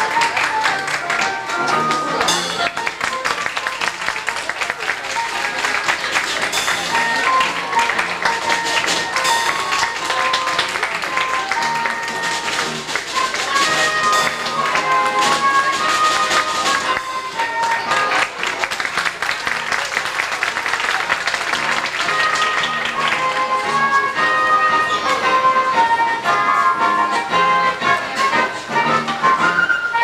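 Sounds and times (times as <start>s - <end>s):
melody of held notes: 0.0s - 18.5s, 21.5s - 30.0s
clicking percussion: 5.2s - 18.2s.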